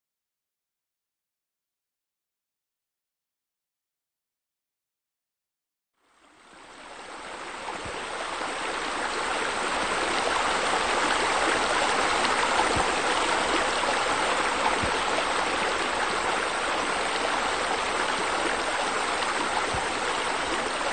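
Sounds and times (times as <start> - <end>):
running splashing water: 7.7 - 20.9.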